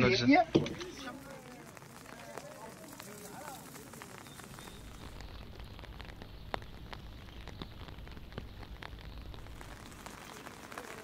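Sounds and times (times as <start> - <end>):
raindrops ticking: 0.0 - 11.0.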